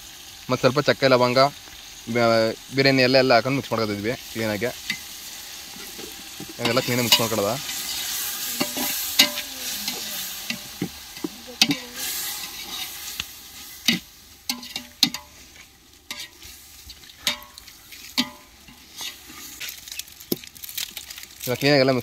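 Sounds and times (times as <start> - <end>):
hot oil sizzling: 0.0 - 22.0
spoon scraping a pot: 5.8 - 19.7.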